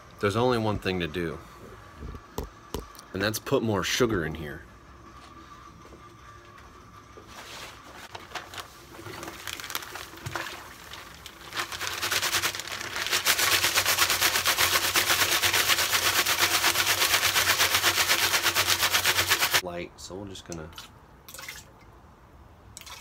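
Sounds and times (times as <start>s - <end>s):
plastic bag crinkling: 8.1s - 19.6s
sugar rattling into barrel: 9.0s - 19.6s.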